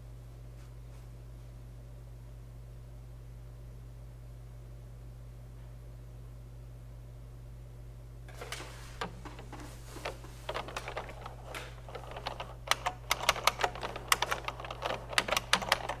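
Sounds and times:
computer keyboard typing: 9.2s - 16.0s.

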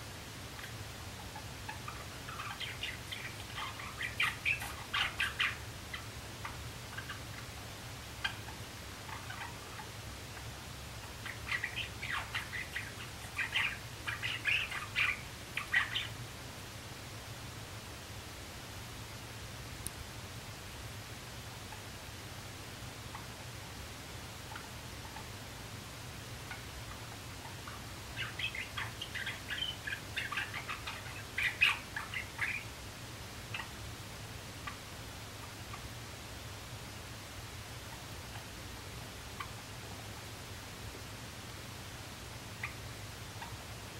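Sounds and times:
sparrow chirping song: 0.6s - 7.6s, 11.0s - 16.2s, 26.5s - 32.8s.

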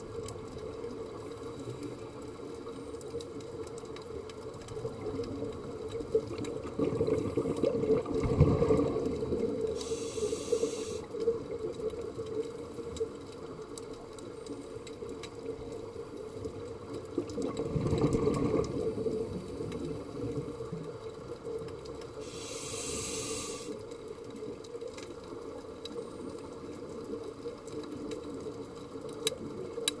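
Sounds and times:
exhaled bubbles gurgling: 0.0s - 13.4s, 15.3s - 23.8s
regulator inhale hiss: 9.7s - 11.1s, 22.2s - 23.9s.

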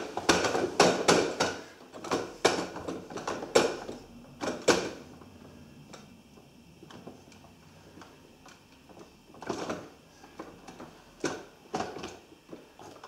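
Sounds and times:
knocking on hard plastic toy: 0.2s - 5.0s.

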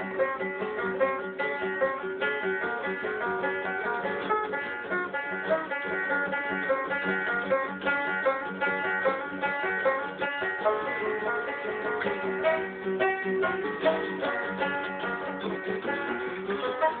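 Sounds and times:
acoustic guitar strumming: 0.0s - 17.0s
banjo plucking: 0.0s - 17.0s.

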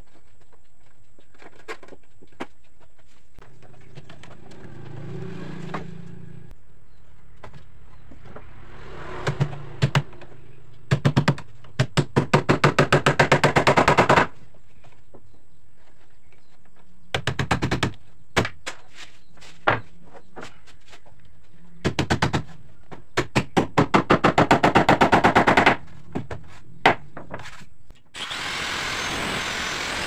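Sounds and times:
rapid bursts of sharp knocks: 10.9s - 14.4s, 17.1s - 18.6s, 23.2s - 25.8s.

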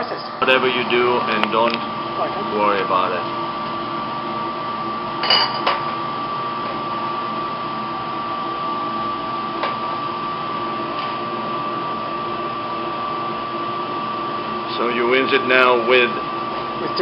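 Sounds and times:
ventilation fan hum with whine: 0.0s - 17.0s
glass bottles clinking: 5.2s - 5.8s.

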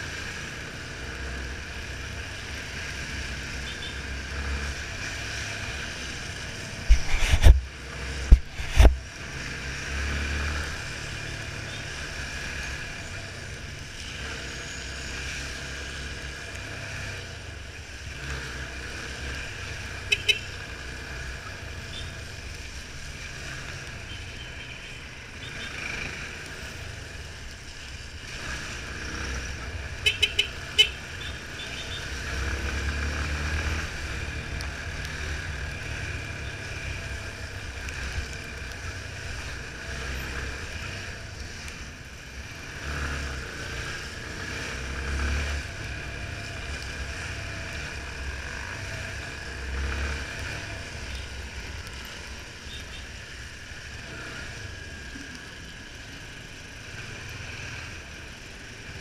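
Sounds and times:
motorcycle engine: 0.0s - 59.0s
wind and wet road hiss: 4.3s - 11.6s, 25.8s - 59.0s.

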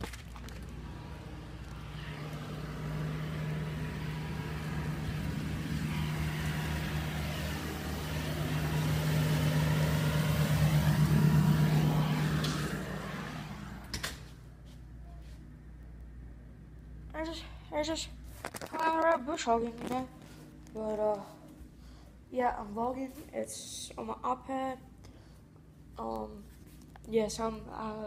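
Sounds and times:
vehicle engine driving past: 0.0s - 14.6s.

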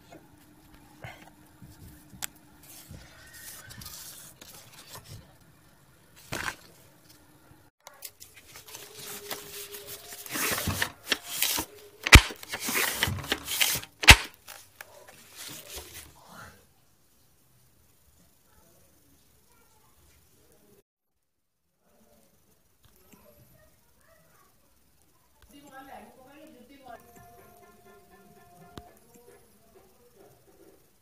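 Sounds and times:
cardboard rubbing and scraping: 2.6s - 5.3s, 8.3s - 14.4s, 15.1s - 16.1s.

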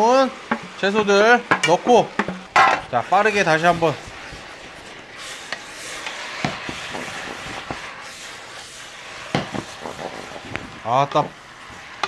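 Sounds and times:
food sizzling in a wok: 0.0s - 12.0s
wooden spatula knocking pan: 0.4s - 2.9s, 6.4s - 7.9s, 9.3s - 10.0s.

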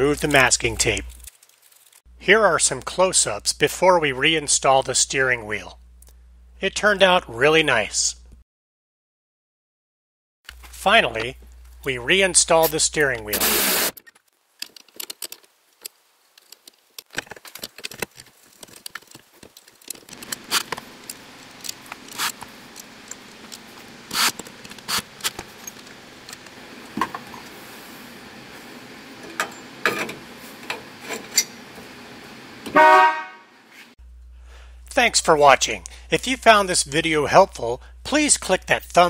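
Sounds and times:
faint steady hum: 2.1s - 8.4s, 34.0s - 39.0s
metal parts and tools clinking: 29.2s - 31.6s
car horn honk: 32.7s - 33.5s.

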